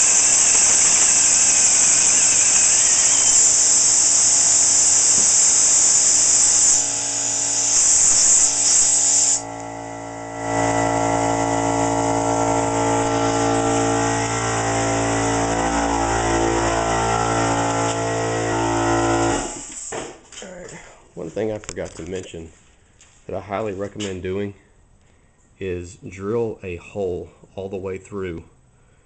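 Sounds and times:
compressed air hissing: 0:00.0 - 0:09.5, 0:12.4 - 0:20.2
drill motor whirring: 0:00.0 - 0:20.0.

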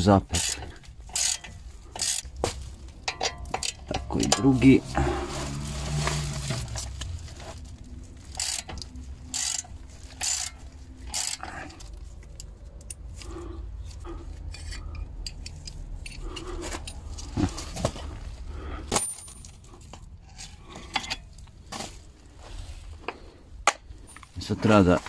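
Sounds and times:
metal clinks and scrapes: 0:00.0 - 0:25.0
ratchet clicking: 0:00.3 - 0:02.4, 0:03.0 - 0:04.4, 0:08.2 - 0:13.3, 0:13.9 - 0:17.0.

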